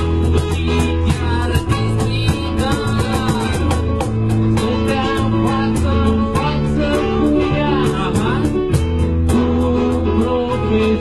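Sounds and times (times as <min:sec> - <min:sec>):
voices singing: 0:00.0 - 0:08.7
acoustic guitar: 0:00.0 - 0:11.0.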